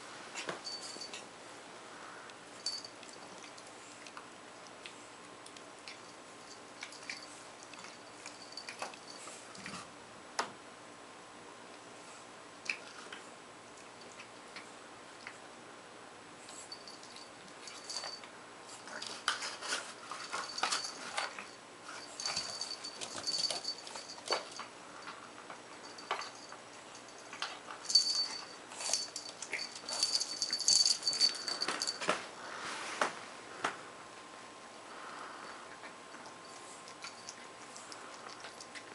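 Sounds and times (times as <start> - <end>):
high metallic ringing: 0.6 - 1.2, 2.6 - 3.2, 20.2 - 25.1, 25.8 - 32.1.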